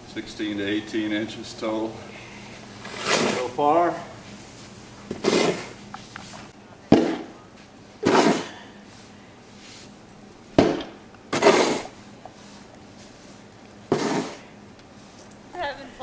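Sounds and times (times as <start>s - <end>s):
snow shovel scraping snow: 2.8s - 3.7s, 5.1s - 5.8s, 8.0s - 8.5s, 11.3s - 13.3s, 13.9s - 14.5s.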